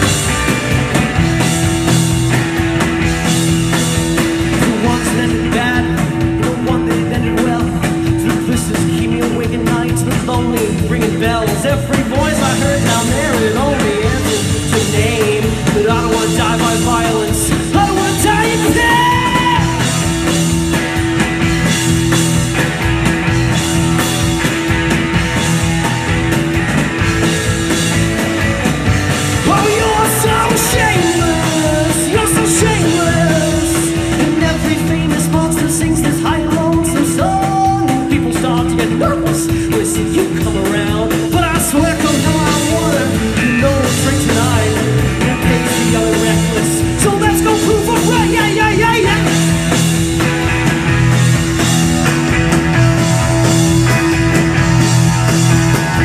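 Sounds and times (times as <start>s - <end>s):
rock band playing: 0.0s - 56.0s
man singing: 4.1s - 20.6s, 29.2s - 49.9s.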